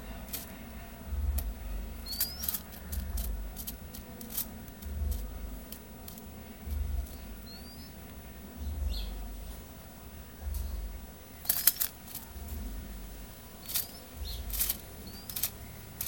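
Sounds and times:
dull low thumps: 1.0 - 2.2, 2.9 - 3.9, 4.7 - 5.7, 6.6 - 7.6, 8.5 - 9.6, 10.4 - 11.1, 12.4 - 13.4, 14.2 - 15.2.

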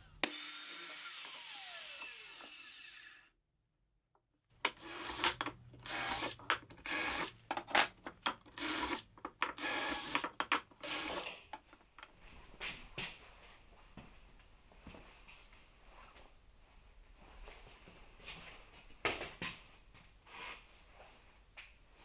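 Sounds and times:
cordless drill bursts: 0.0 - 3.3, 4.8 - 7.4, 8.6 - 9.0, 9.6 - 10.2, 10.8 - 11.3.

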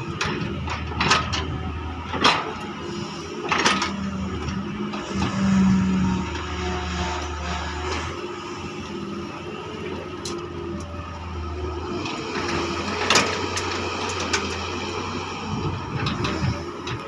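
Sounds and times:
excavator diesel engine under load: 0.0 - 17.0.

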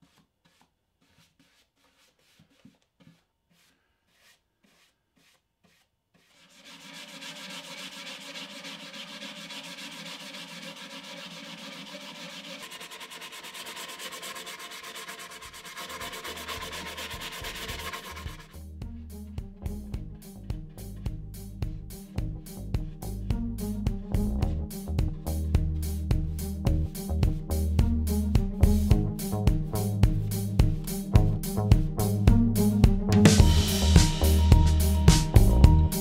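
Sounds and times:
paintbrush strokes on plywood: 0.0 - 18.5
sandpaper rubbing on wood: 0.0 - 18.5
background music: 16.2 - 36.0.

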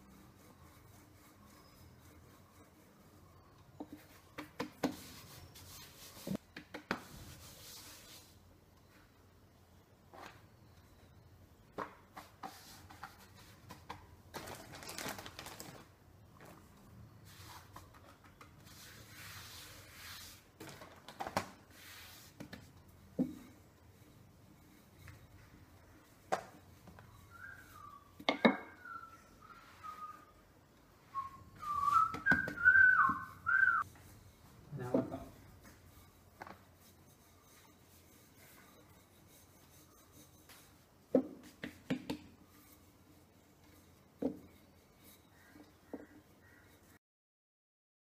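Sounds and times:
plastic bag crinkling: 14.4 - 15.9
person whistling a slow tune: 27.3 - 28.1, 28.7 - 30.4, 31.1 - 33.8.

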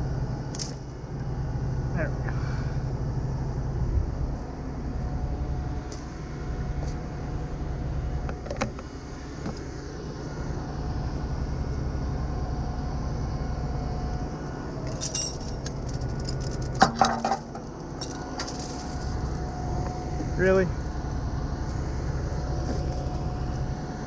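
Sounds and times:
truck engine idling: 0.0 - 24.0
chain links jangling and clanking: 0.5 - 0.9, 5.9 - 6.2, 14.8 - 19.5, 22.6 - 23.3.

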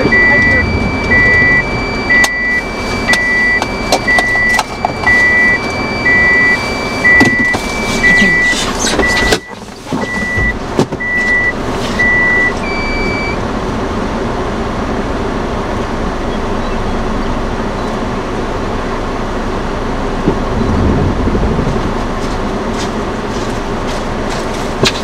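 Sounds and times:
low rumble: 0.0 - 4.2, 19.7 - 23.7
short high electronic beeps: 0.0 - 9.5
rushing storm wind: 20.2 - 22.6.

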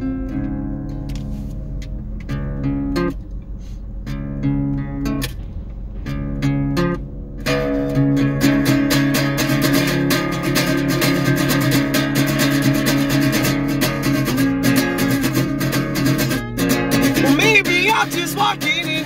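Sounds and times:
acoustic guitar strumming: 0.0 - 19.0
person singing: 17.1 - 19.0.

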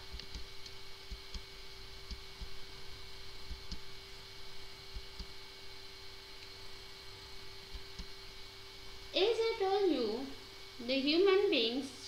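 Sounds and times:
soft low clicks: 0.0 - 2.6, 3.5 - 3.9, 4.9 - 5.4, 7.7 - 8.2
faint whine over hiss: 0.0 - 12.0.

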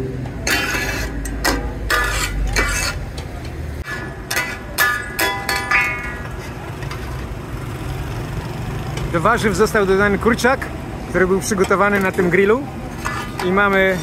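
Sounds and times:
metal spatulas clanking on griddle: 0.4 - 7.2, 11.4 - 14.0.

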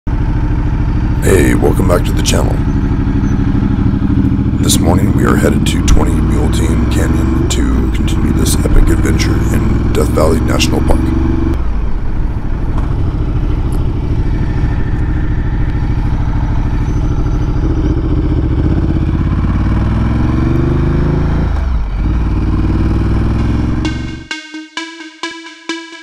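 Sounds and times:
motorcycle engine accelerating: 0.1 - 24.4
electronic music with beat: 23.8 - 26.0.

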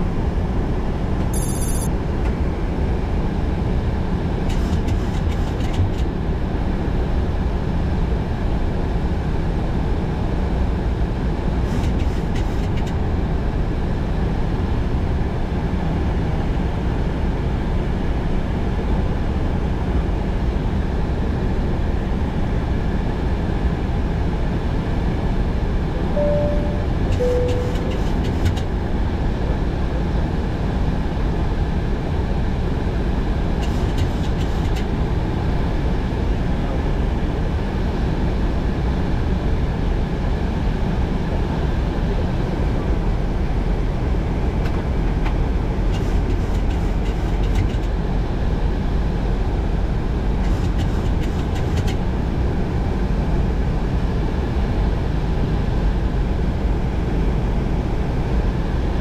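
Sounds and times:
jet engines droning: 25.7 - 29.3
two-note chime: 26.2 - 28.1.

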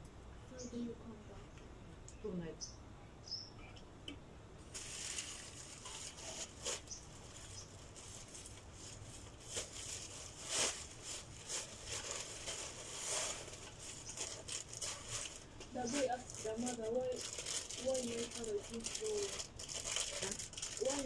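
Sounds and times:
plastic bag rustling: 4.6 - 21.0.

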